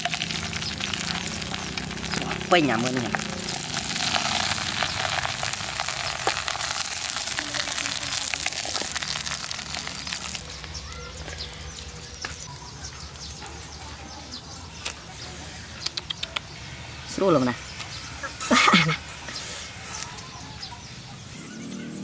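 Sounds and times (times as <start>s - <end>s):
liquid hissing and bubbling in pot: 0.0s - 13.4s
wood fire crackling: 0.0s - 15.1s.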